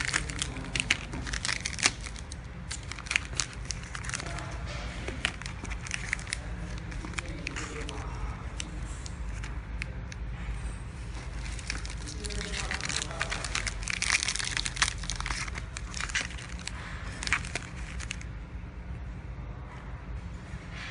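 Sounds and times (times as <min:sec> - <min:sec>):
plastic film clicking and crinkling: 0:00.0 - 0:10.2, 0:11.0 - 0:18.3
wrapping machine humming: 0:00.0 - 0:19.2.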